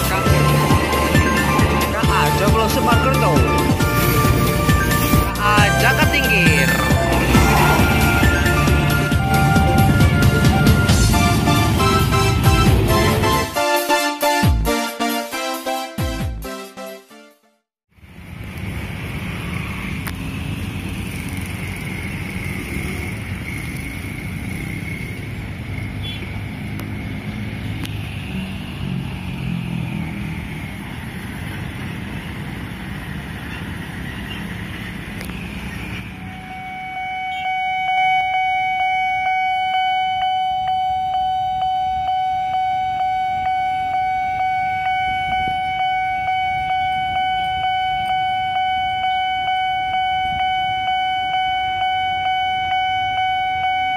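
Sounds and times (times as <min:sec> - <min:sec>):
cars and motorcycles passing: 0:00.0 - 0:13.6, 0:18.0 - 0:53.9
level crossing warning alarm: 0:00.0 - 0:14.4, 0:36.0 - 0:53.9.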